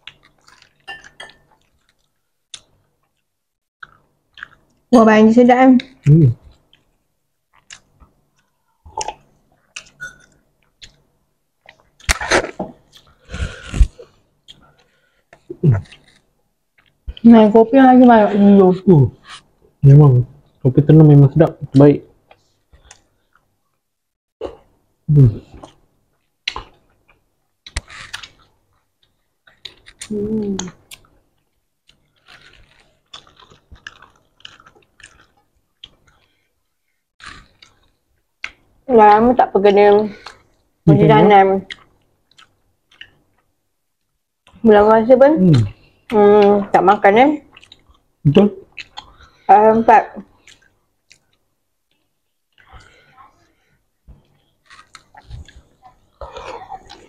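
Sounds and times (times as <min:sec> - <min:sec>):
wet chewing: 0:00.0 - 0:04.9, 0:05.8 - 0:17.2, 0:25.5 - 0:36.6, 0:37.2 - 0:43.5, 0:45.5 - 0:49.5, 0:50.1 - 0:57.0
person humming: 0:30.1 - 0:30.8.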